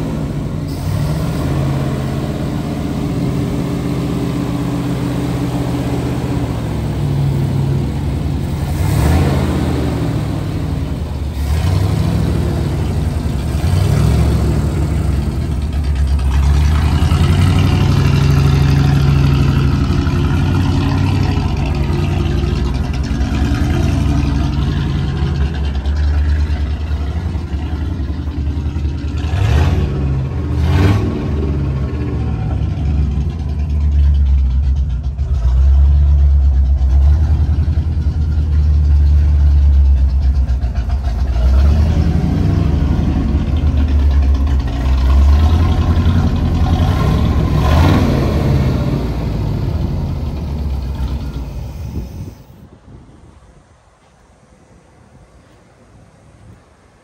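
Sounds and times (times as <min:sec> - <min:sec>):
truck engine revving: 0:00.0 - 0:52.6
short rushes of noise: 0:50.4 - 0:52.9.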